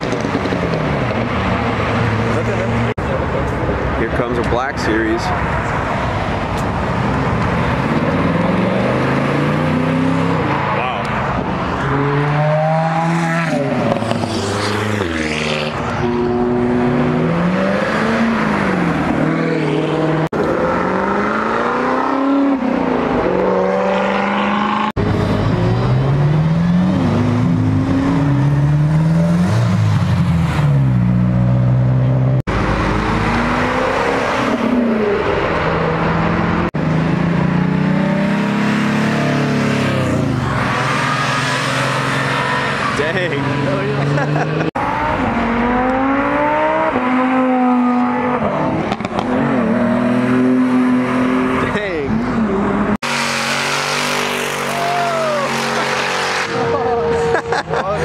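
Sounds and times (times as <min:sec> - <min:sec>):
sports cars accelerating hard: 0:00.0 - 0:58.0.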